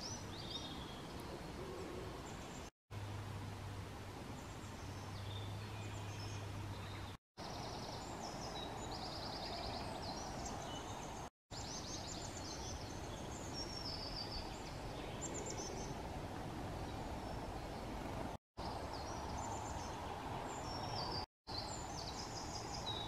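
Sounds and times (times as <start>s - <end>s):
songbirds singing: 0.0s - 2.7s, 4.2s - 23.0s
low steady hum: 2.2s - 7.1s.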